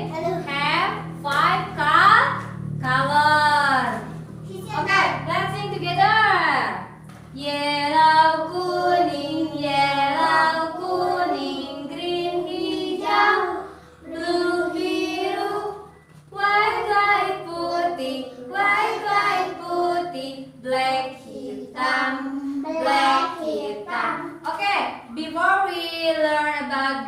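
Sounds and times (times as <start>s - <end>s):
woman and children singing: 7.3s - 27.0s.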